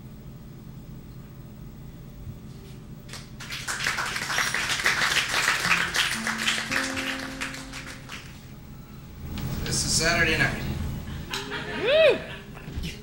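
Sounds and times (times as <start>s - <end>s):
audience applauding: 3.1s - 8.4s
acoustic guitar notes plucked: 5.7s - 8.5s.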